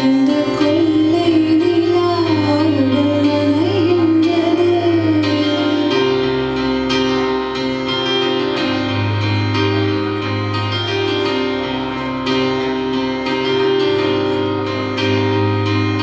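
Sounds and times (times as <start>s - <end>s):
woman singing into a microphone: 0.0s - 6.3s
electronic keyboard chords: 0.0s - 16.0s.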